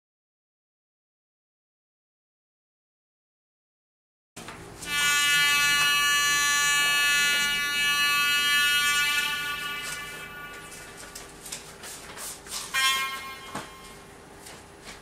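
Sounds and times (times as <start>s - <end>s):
model train horn from tiny speaker: 4.9s - 11.0s, 12.7s - 13.8s.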